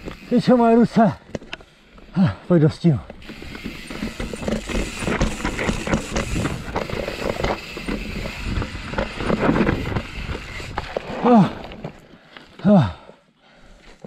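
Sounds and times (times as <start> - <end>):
bike rattling and knocking: 3.0 - 11.1
bike tyres rumbling over rock: 3.1 - 12.2.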